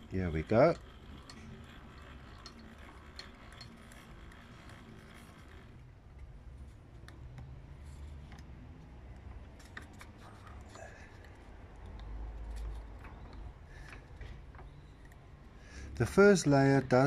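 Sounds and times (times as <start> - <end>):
coil winding machine clicking: 0.0 - 6.4.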